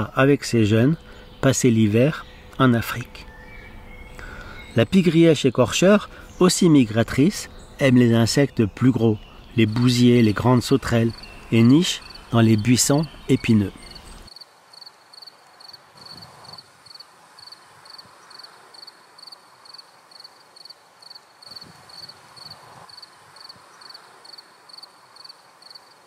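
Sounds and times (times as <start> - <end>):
faint outdoor hiss: 0.0 - 26.0
cricket chirping: 13.8 - 26.0.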